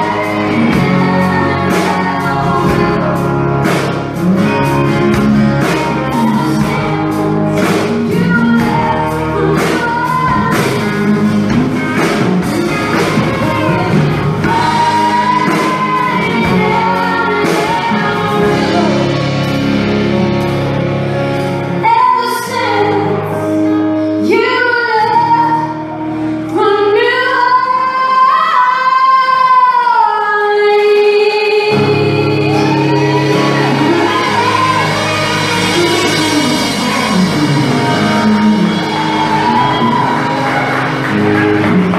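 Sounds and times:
woman singing: 0.0 - 3.9, 5.4 - 19.3, 21.8 - 25.9, 26.5 - 40.6
band with electric guitar: 0.0 - 41.9.

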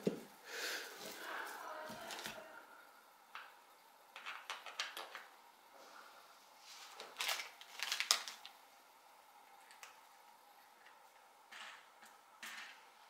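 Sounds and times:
plastic bags crinkling: 6.8 - 8.6.

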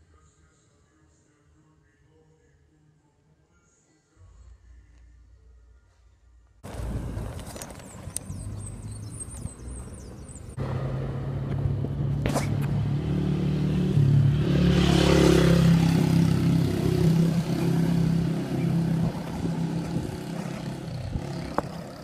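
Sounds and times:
vehicle engine passing by: 6.6 - 22.0.

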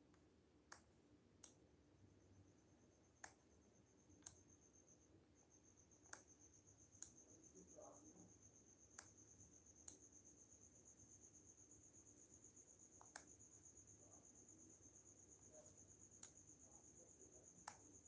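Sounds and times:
cricket chirping: 0.8 - 18.0
sharp single clicks: 6.0 - 6.3, 17.6 - 17.9.

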